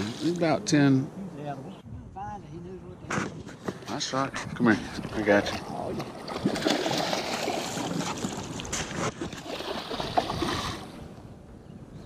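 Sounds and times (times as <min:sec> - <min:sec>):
fish thrashing and splashing water: 0:06.0 - 0:11.0.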